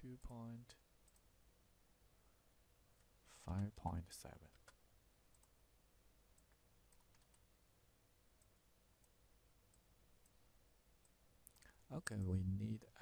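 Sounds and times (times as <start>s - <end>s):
computer mouse clicks: 1.0s - 1.3s, 4.5s - 5.6s, 6.3s - 7.5s.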